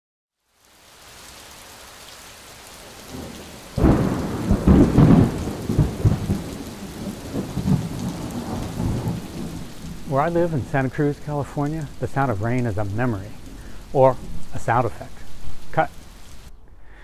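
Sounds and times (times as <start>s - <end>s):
steady rain: 0.4s - 17.0s
thunder clap and rumble: 2.8s - 16.4s.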